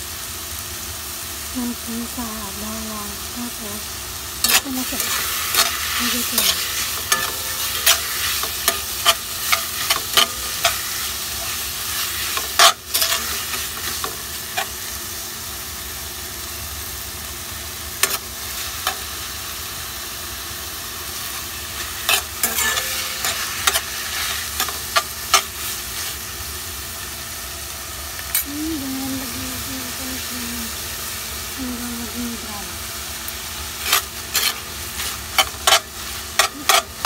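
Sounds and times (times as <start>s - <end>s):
meat sizzling in a wok: 0.0s - 37.0s
spatula scraping and clacking on pan: 4.4s - 14.8s, 18.0s - 19.1s, 21.8s - 26.2s, 33.3s - 37.0s.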